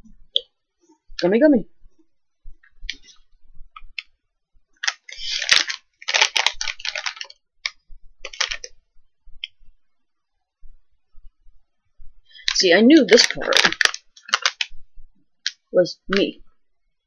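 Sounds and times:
plastic wrapper crinkling: 4.8 - 8.8, 12.4 - 14.8.

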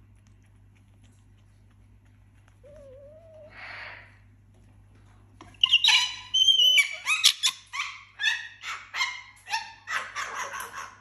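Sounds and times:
high-pitched animal calls: 5.6 - 10.4.

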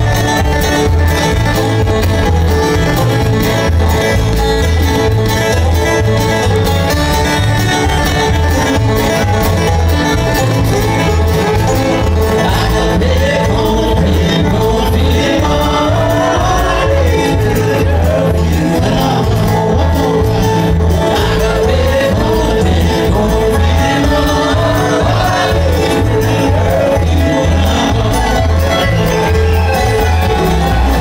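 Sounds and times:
bluegrass band playing: 0.0 - 31.0.

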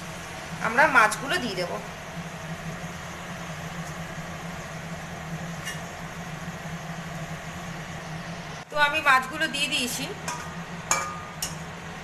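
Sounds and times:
constant low hum: 0.0 - 12.0
gravy simmering hiss: 0.0 - 12.0.

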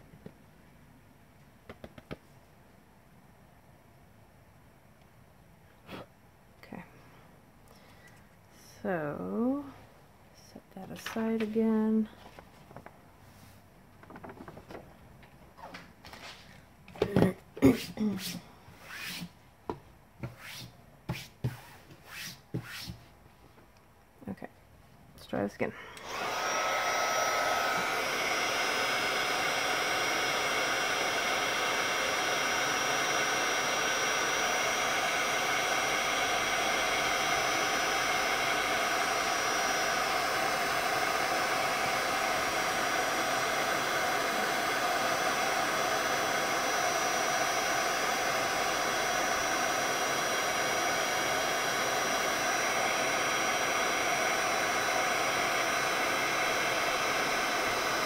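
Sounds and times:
heat gun fan hissing and whining: 10.8 - 12.1, 25.7 - 58.0.

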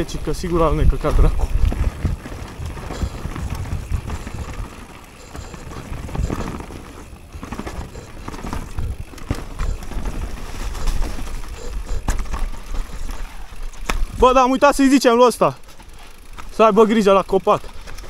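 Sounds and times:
bike knocks and rattles: 0.0 - 18.0
bike tyres rolling over dirt: 0.0 - 18.0.

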